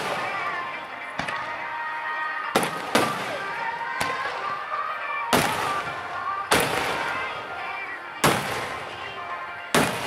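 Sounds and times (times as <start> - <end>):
fireworks booming: 0.0 - 0.5, 2.5 - 4.4, 5.3 - 7.3, 8.2 - 9.0, 9.7 - 10.0.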